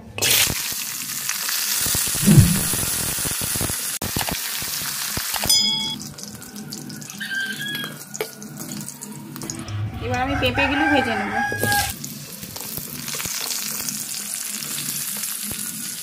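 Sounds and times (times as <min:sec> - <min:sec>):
vegetables sizzling in hot oil: 0:00.2 - 0:06.0, 0:11.7 - 0:16.0.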